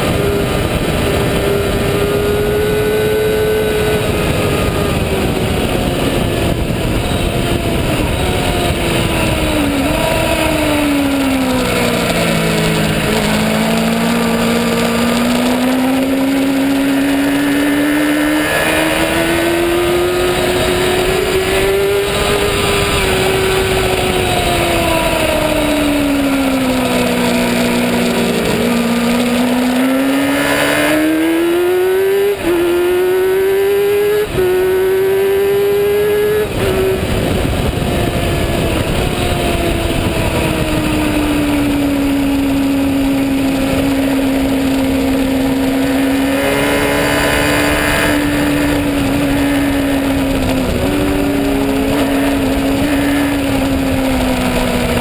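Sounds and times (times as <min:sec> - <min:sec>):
race motorcycle engine revving: 0:00.0 - 0:55.0.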